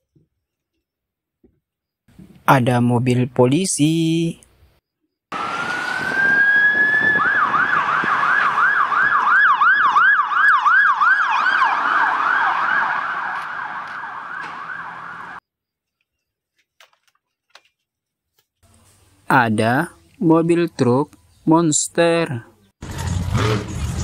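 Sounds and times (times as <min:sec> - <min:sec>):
police siren wailing and yelping: 0:05.3 - 0:15.4
traffic noise: 0:05.3 - 0:15.4.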